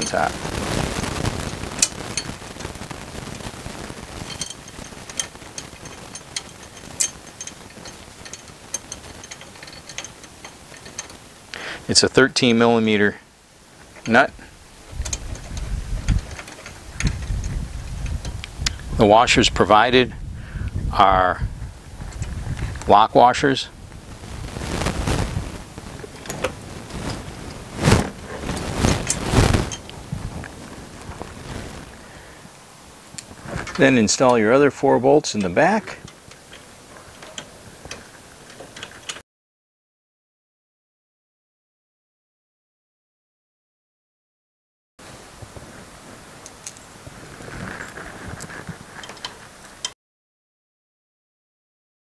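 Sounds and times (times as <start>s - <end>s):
small metal clicks: 4.2s - 11.3s, 14.8s - 18.8s, 35.4s - 39.2s, 47.8s - 49.9s.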